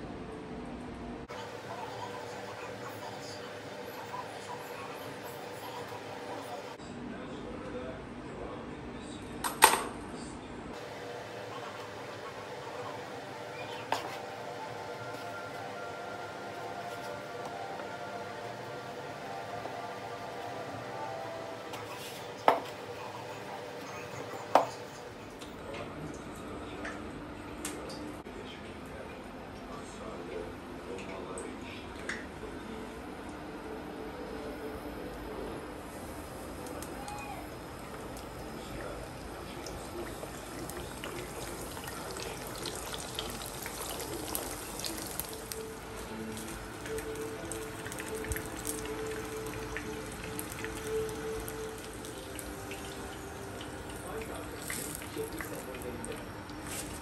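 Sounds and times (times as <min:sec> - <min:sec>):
hot oil sizzling in frying pan: 0:35.9 - 0:57.0
small crackles: 0:39.6 - 0:57.0.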